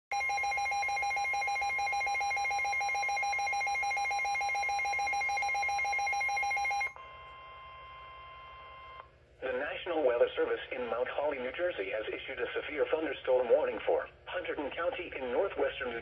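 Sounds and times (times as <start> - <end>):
steady alarm tone: 0.1 - 9.0.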